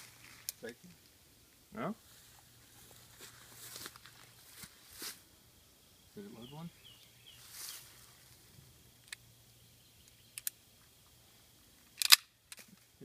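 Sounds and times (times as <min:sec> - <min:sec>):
pistol slide metallic clack: 0:12.0 - 0:12.3
light pistol clicks: 0:12.0 - 0:12.6.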